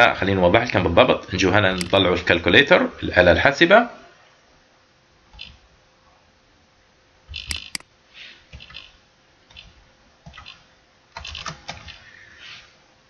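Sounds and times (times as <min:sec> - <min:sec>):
sharp key clicks: 0:01.8 - 0:02.0, 0:07.3 - 0:07.9
computer keyboard typing: 0:07.3 - 0:07.8, 0:09.5 - 0:12.0.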